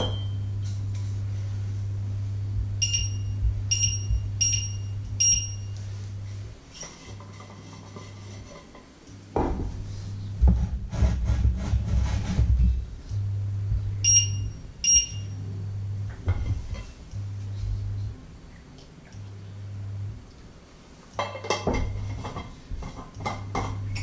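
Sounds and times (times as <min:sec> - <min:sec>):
low electrical hum: 0:00.0 - 0:24.0
short high electronic beeps: 0:02.8 - 0:05.7, 0:14.1 - 0:15.3.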